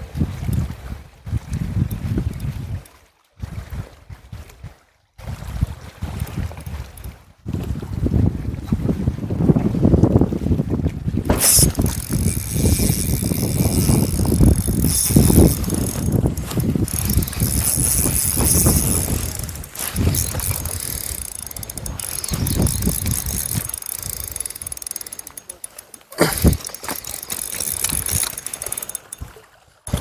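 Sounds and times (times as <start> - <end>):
wind buffeting microphone: 0.0 - 25.1, 26.3 - 30.0
fishing reel gears whirring: 1.7 - 2.9, 6.2 - 7.2, 11.3 - 30.0.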